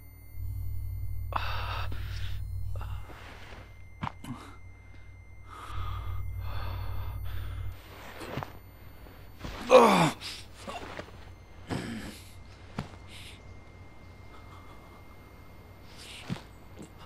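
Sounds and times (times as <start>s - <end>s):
deep low rumble: 0.0s - 9.4s.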